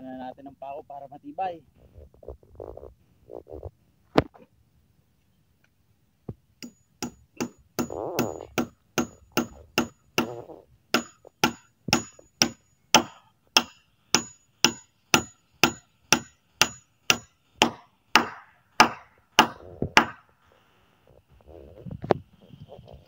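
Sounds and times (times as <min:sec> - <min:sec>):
hammer driving nails: 0:06.6 - 0:20.2.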